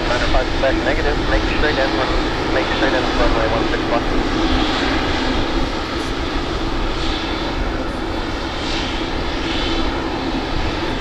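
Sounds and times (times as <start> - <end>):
jet engines running: 0.0 - 11.0.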